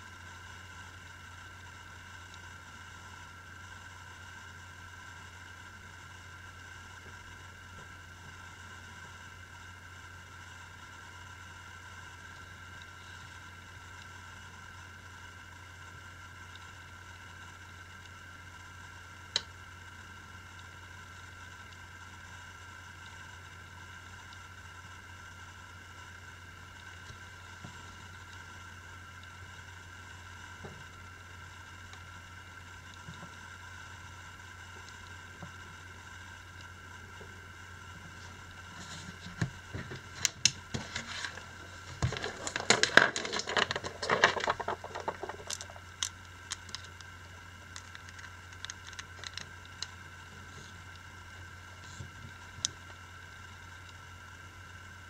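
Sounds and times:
low electrical hum and hiss: 0.0s - 55.0s
faint ticks: 2.2s - 2.5s, 12.2s - 14.2s, 16.4s - 21.9s, 29.1s - 32.2s, 32.8s - 37.3s, 44.4s - 54.1s.

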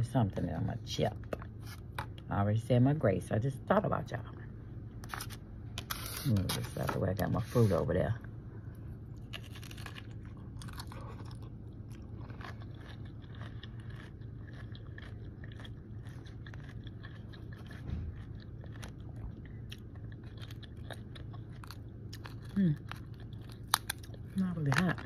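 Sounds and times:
crunchy chewing: 9.1s - 25.0s.

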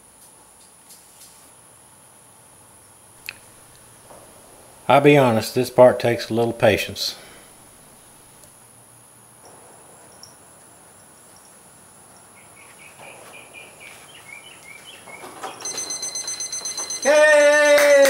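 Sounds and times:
birds chirping faintly: 9.4s - 15.8s
thermometer alarm beeping rapidly: 15.5s - 17.8s.

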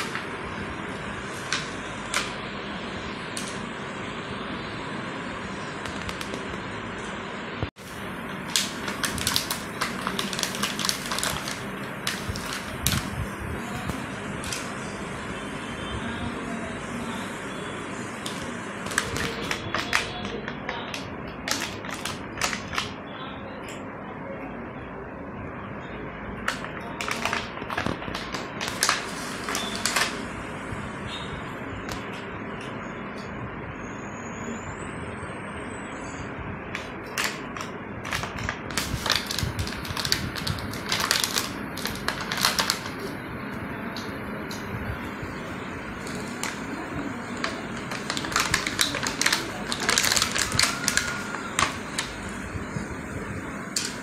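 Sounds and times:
plastic packaging crackling: 0.0s - 0.4s, 5.8s - 6.5s, 7.8s - 14.8s, 18.2s - 23.0s, 26.4s - 30.3s, 36.8s - 43.2s, 45.9s - 52.5s
plastic toys clicking and rattling: 37.2s - 43.0s, 47.4s - 52.1s.

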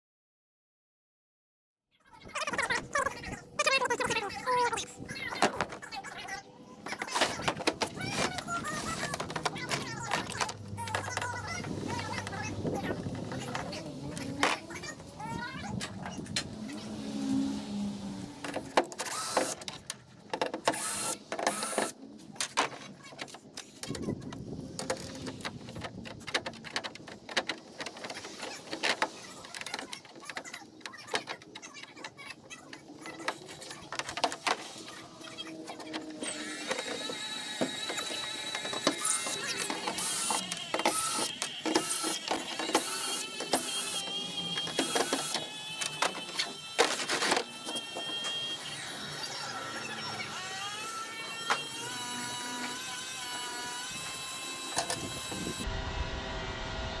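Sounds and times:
tools and plastic parts clicking: 5.2s - 14.9s, 18.4s - 48.6s, 53.7s - 55.3s
cordless drill whining: 7.4s - 22.2s, 33.1s - 55.7s.

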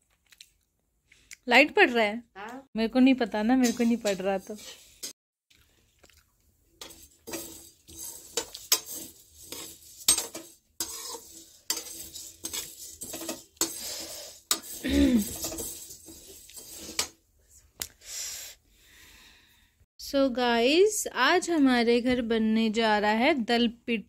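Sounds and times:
metal spatula scraping pan: 3.5s - 5.2s, 6.8s - 17.2s.

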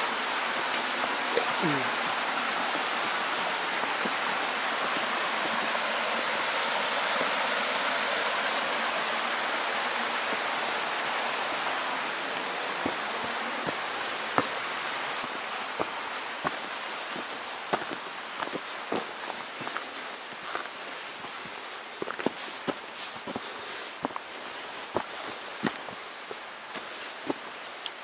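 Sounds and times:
river flowing over rocks: 0.0s - 28.0s
footsteps tapping: 21.3s - 24.3s.

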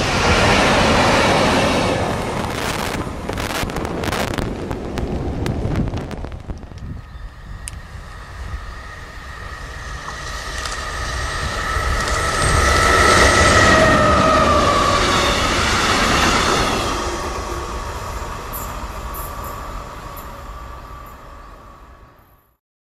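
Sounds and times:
freight train rumbling past: 0.0s - 22.5s
high squealing tone: 7.0s - 21.7s.

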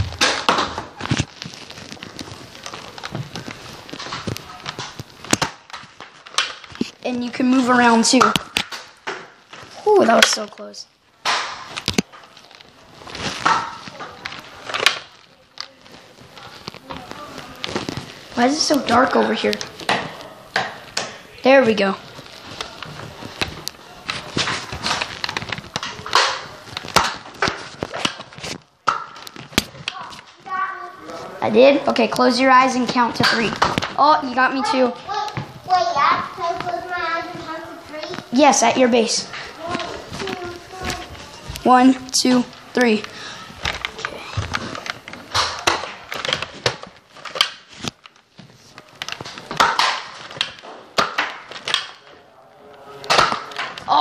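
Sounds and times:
handling clicks and rustles: 11.3s - 31.2s, 32.0s - 53.9s.

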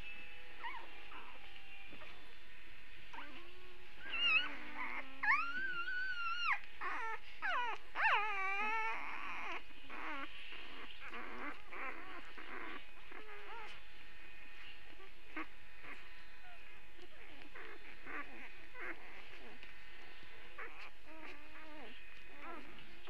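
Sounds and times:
puppies whimpering and squealing: 0.0s - 2.3s, 3.1s - 23.0s.

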